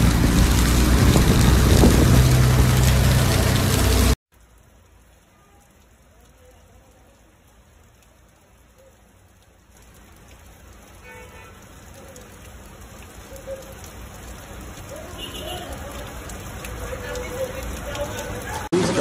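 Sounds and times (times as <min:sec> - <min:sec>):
rain on flooded street: 0:00.0 - 0:19.0
water running off roof edge: 0:00.0 - 0:19.0.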